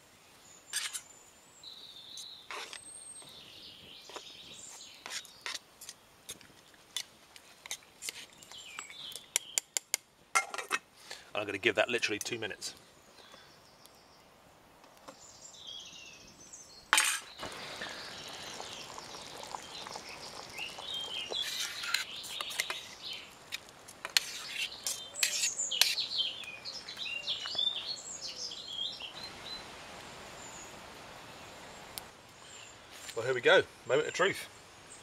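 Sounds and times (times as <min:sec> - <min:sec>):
birds chirping and singing: 0:15.2 - 0:23.3, 0:24.3 - 0:29.6
spoon scraping steel pot: 0:21.3 - 0:23.0, 0:24.0 - 0:26.0.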